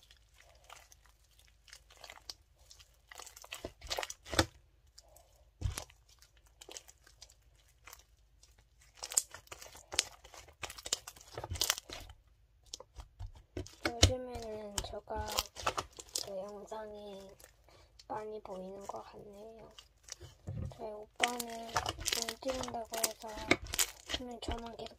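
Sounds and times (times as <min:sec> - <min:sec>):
sticky slime clicks and crackles: 0:05.6 - 0:16.3, 0:21.2 - 0:24.9.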